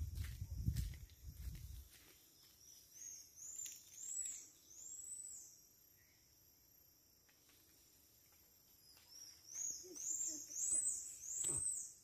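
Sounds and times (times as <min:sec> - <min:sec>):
high thin whistled animal calls: 0:09.7 - 0:12.0.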